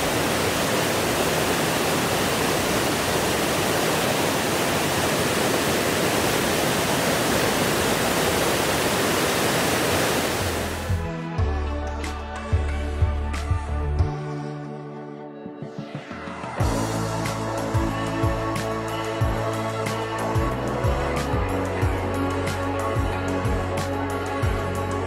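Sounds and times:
river rapids rushing: 0.0s - 10.9s
background music with bass: 10.6s - 25.0s.

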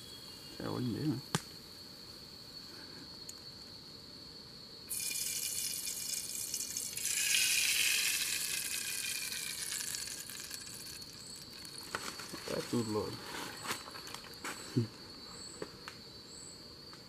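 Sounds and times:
oil sizzling in hot saucepan: 4.9s - 11.8s.

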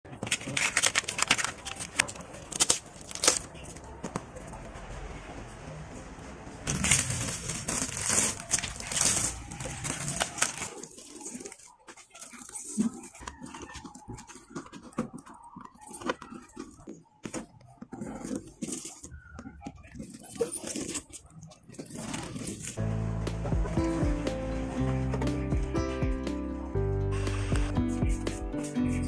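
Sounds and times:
film crinkling and clicking: 0.1s - 4.6s, 6.7s - 22.8s
plastic film tearing: 0.2s - 3.8s, 6.7s - 13.2s.

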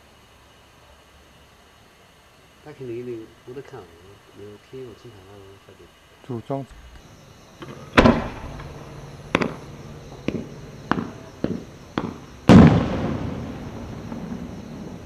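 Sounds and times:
firework bangs: 6.7s - 15.0s
loud echoing firework boom: 6.7s - 15.0s.

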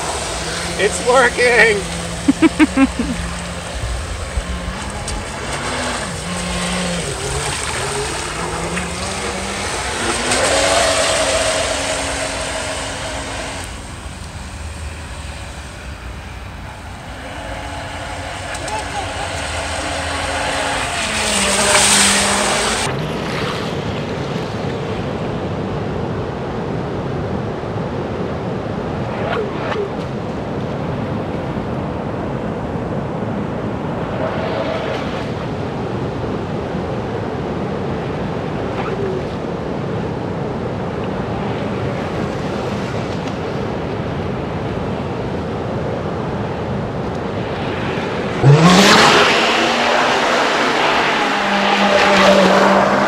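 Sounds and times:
loud rising sound: 9.2s - 22.9s.

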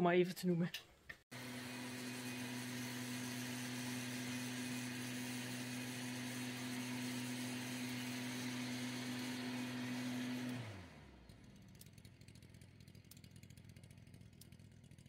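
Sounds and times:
motor hum winding down: 1.3s - 12.0s.

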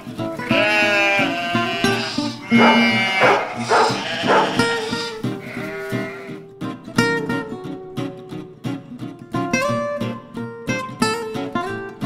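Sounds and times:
acoustic guitar music: 0.0s - 12.0s
sheep bleating: 0.4s - 6.5s.

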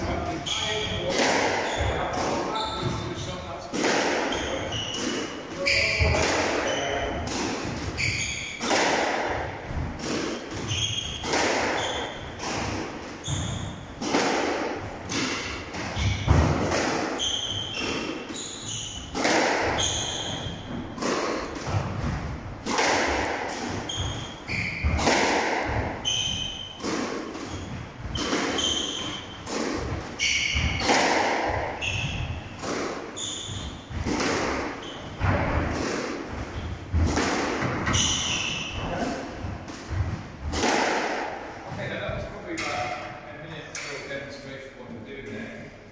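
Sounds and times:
squash ball impacts: 0.0s - 43.1s
shoes squeaking on wooden floor: 0.1s - 3.3s, 4.3s - 7.2s, 7.9s - 8.7s, 10.4s - 14.0s, 17.2s - 21.5s, 23.7s - 25.1s, 25.7s - 29.5s, 30.2s - 35.8s, 37.8s - 40.2s.

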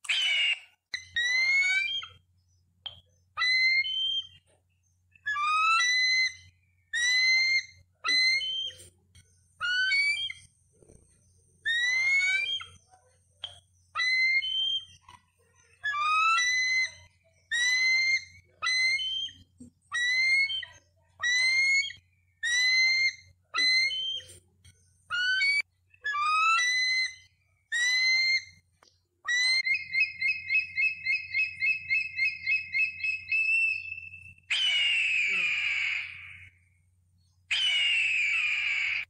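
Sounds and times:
eagle chattering: 0.0s - 2.2s, 11.7s - 24.4s, 34.5s - 36.5s, 37.5s - 39.0s
eagle whistled calls: 0.0s - 2.2s, 2.9s - 4.5s, 5.2s - 8.9s, 9.6s - 10.5s, 11.7s - 12.8s, 13.4s - 15.0s, 15.7s - 24.4s, 25.1s - 28.6s, 29.3s - 36.6s, 37.5s - 39.0s.

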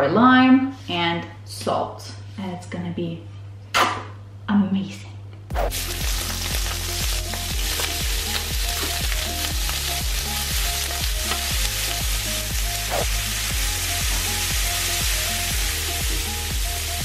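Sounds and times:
music with a regular beat: 5.5s - 17.0s
shrimp sizzling in oil: 5.7s - 17.0s.

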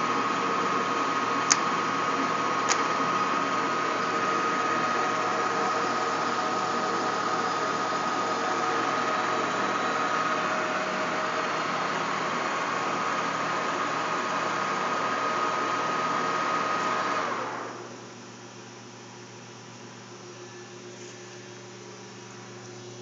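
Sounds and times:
lathe machine whine: 0.0s - 18.2s.

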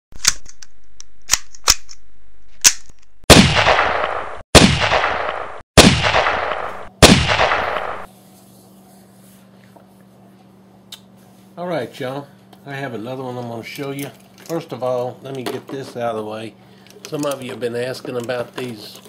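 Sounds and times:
gunshots ringing out: 3.3s - 8.1s
faint steady hum: 5.8s - 19.0s.

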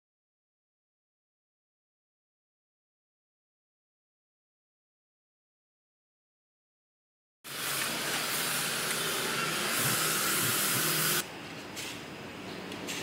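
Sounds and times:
loud rushing air hiss: 7.5s - 11.2s.

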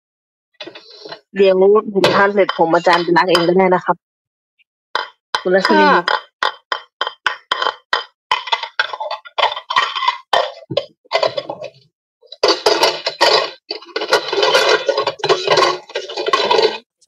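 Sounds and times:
dishes and cutlery clattering: 2.0s - 3.6s, 5.0s - 16.9s.

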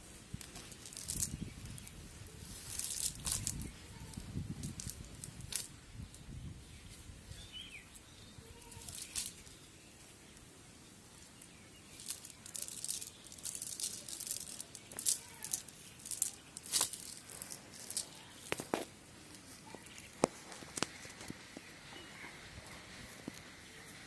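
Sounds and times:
net mesh rustling and clicking: 0.3s - 1.8s, 2.6s - 3.7s, 8.8s - 9.6s, 11.4s - 18.9s.

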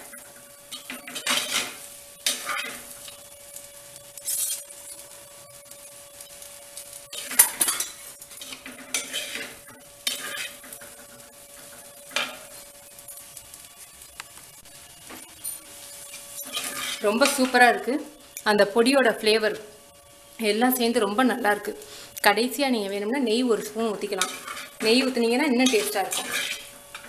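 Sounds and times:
metal spoon scraping rice in pot: 7.1s - 12.7s, 15.4s - 17.4s, 24.1s - 27.0s.

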